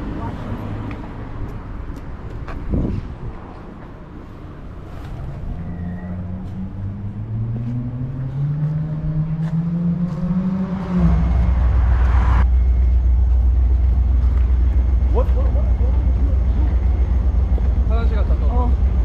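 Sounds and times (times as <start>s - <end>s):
vehicle engine revving: 4.9s - 15.0s.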